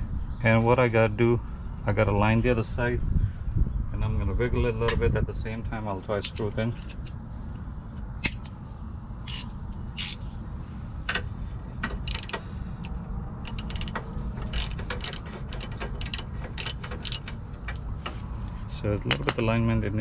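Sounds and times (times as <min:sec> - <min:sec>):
socket ratchet clicking: 0:06.9 - 0:07.1, 0:09.3 - 0:10.2, 0:12.0 - 0:17.4.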